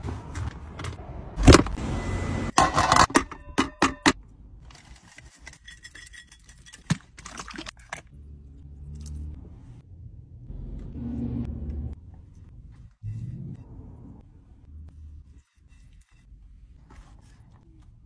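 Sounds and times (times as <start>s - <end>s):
metallic clinks and clatters: 5.2s - 6.9s
low steady rumble: 8.1s - 18.0s.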